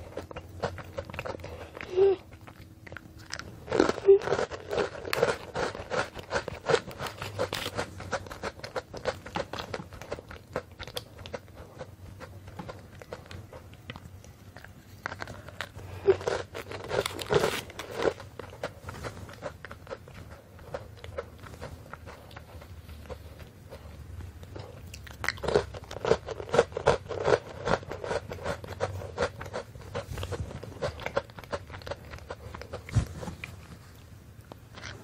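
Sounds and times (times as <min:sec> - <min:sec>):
cookie crunching while chewed: 0:00.0 - 0:35.0
foil wrapper tearing and crinkling: 0:16.0 - 0:18.2.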